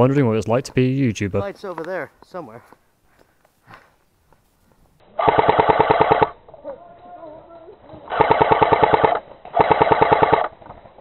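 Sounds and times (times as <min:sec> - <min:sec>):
airsoft machine gun bursts: 0:05.2 - 0:06.4, 0:08.1 - 0:10.6.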